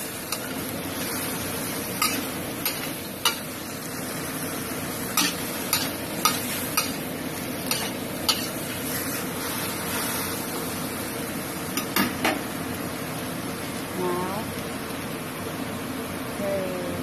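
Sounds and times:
vegetables sizzling in a wok: 0.0s - 17.0s
metal spatula clanking on pan: 5.2s - 7.0s.

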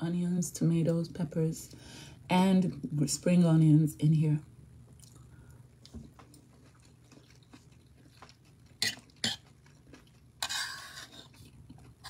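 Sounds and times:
faint chewing: 4.9s - 12.0s
fork scraping across plate: 10.4s - 11.3s.

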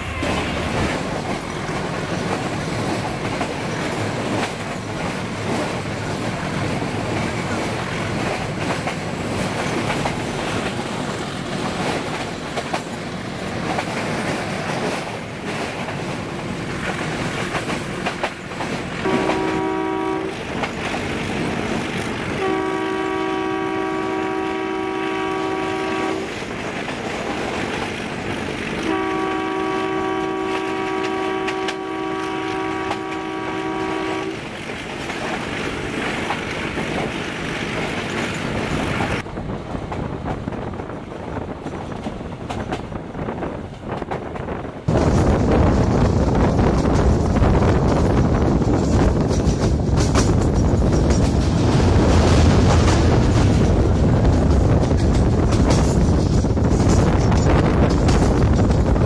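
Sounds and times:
locomotive two-note horn: 0.0s - 0.9s, 19.0s - 20.4s, 22.4s - 26.3s, 28.8s - 34.4s
train clickety-clack on track: 0.0s - 59.0s.

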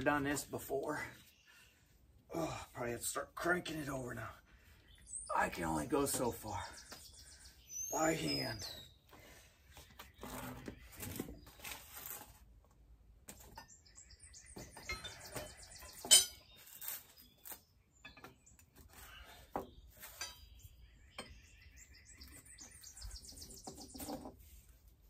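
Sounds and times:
birds chirping: 0.0s - 12.0s, 13.3s - 24.6s
wrenches clinking and clanking: 14.7s - 17.1s, 20.0s - 20.5s.

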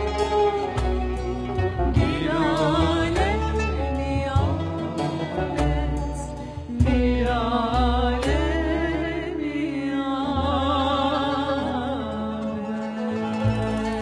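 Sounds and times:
instrumental accompaniment: 0.0s - 14.0s
woman singing with vibrato: 1.9s - 14.0s.

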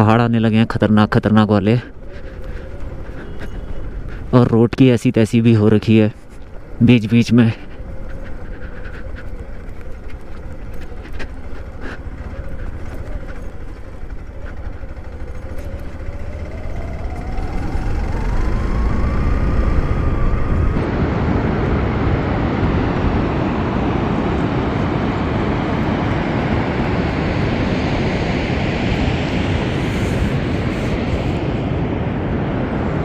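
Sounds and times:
wind rushing over microphone: 0.0s - 33.0s
motorcycle engine: 1.7s - 5.1s, 5.8s - 21.4s.

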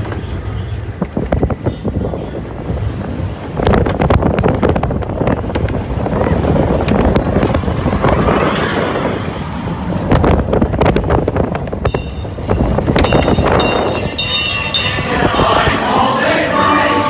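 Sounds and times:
wind buffeting microphone: 0.0s - 16.9s
roller coaster wheels rattling: 0.0s - 17.0s
chiming music: 11.9s - 17.0s.

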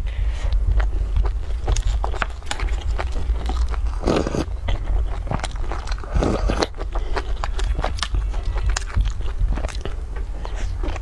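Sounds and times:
low hum: 0.0s - 11.0s
chewing with wet mouth clicks: 0.5s - 11.0s.

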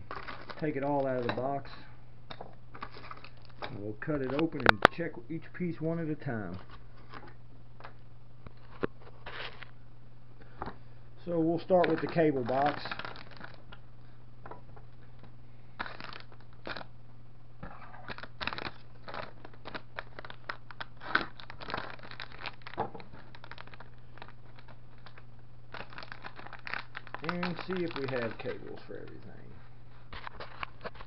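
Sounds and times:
plastic packaging crinkling: 0.0s - 1.8s, 2.7s - 5.0s, 8.5s - 9.7s, 11.4s - 13.8s, 15.8s - 16.9s, 18.0s - 29.5s, 30.1s - 31.0s
low steady hum: 0.0s - 31.0s.

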